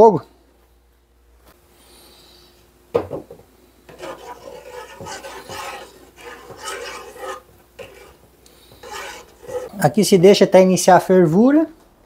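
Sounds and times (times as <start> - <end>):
metal spoon scraping pan: 3.9 - 10.0.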